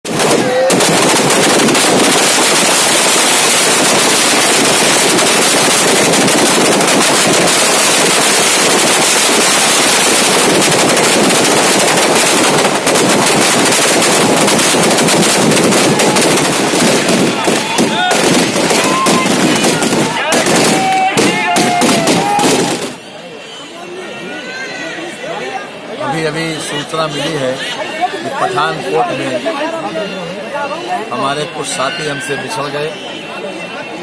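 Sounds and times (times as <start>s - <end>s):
firecrackers crackling: 0.0s - 23.1s.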